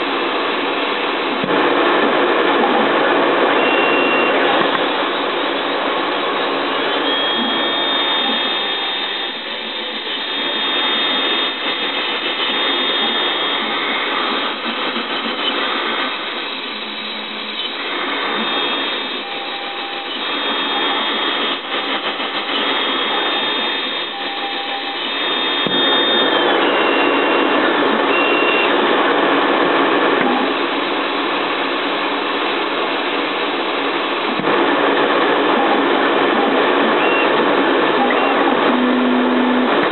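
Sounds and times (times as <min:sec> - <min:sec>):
milling machine spindle cutting: 0:06.1 - 0:27.4.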